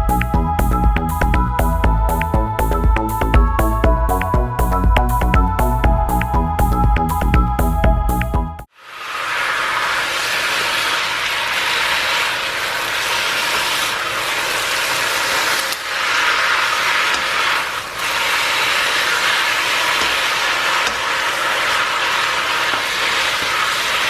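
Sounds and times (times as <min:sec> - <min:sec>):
meat sizzling in a wok: 0:08.7 - 0:24.0.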